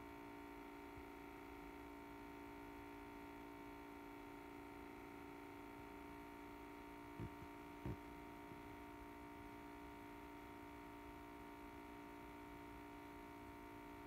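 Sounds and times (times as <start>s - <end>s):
faint two-tone hum: 0.0s - 14.0s
soft thumps: 7.2s - 8.0s.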